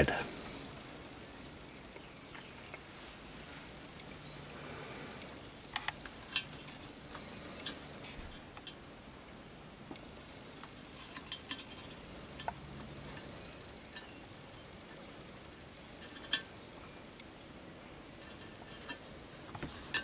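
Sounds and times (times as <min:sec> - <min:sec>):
probe cable clicking against metal: 0:10.6 - 0:13.3.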